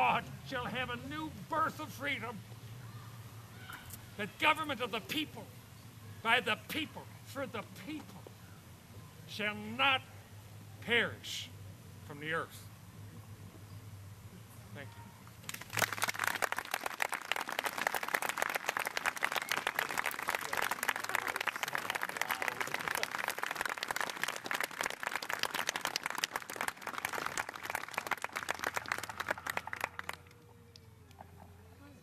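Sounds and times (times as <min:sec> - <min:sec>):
crowd applauding: 0:15.5 - 0:30.8.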